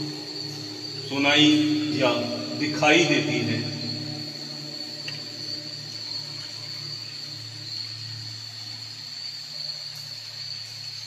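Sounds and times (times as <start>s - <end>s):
low hum: 0.0s - 9.1s
high-pitched whine: 0.0s - 9.6s
faint hiss: 0.0s - 11.0s.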